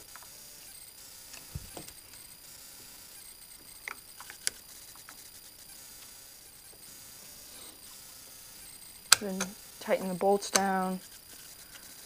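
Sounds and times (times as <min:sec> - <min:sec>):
soft low thump: 0:01.5 - 0:01.9
screwdriver clicking on metal: 0:10.4 - 0:10.9.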